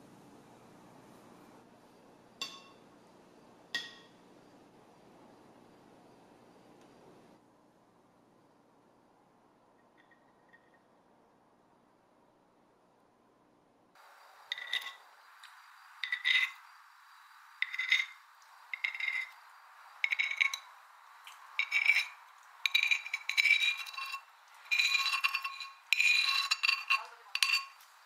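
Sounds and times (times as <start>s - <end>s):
metal spoon scraping ceramic plate: 14.5s - 15.0s, 16.0s - 16.7s, 17.6s - 19.4s, 20.0s - 20.7s, 21.3s - 27.9s.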